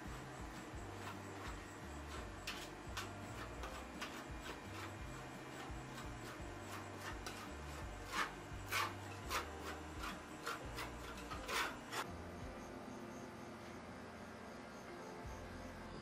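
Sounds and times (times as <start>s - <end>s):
metal spatula scraping steel plate: 0.0s - 12.1s.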